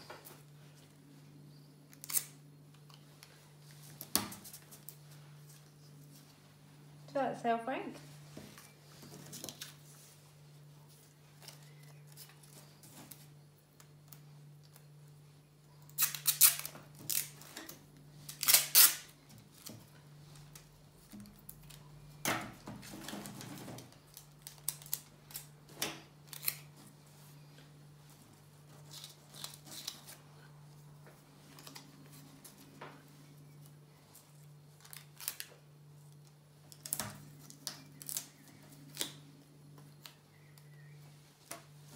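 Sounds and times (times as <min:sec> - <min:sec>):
tape ripping off roll: 0:16.0 - 0:17.7, 0:18.3 - 0:19.7
paper and straws handled: 0:28.6 - 0:39.2.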